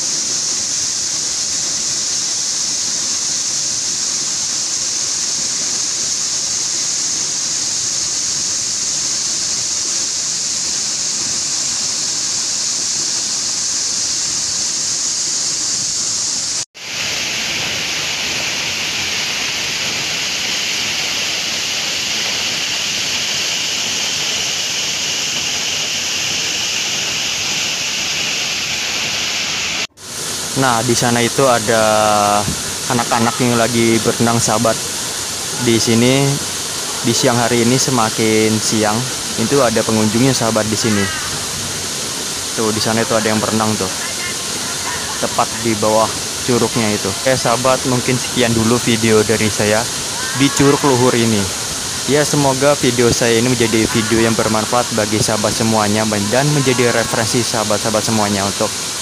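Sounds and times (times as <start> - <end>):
waterfall rushing: 16.5 - 59.0.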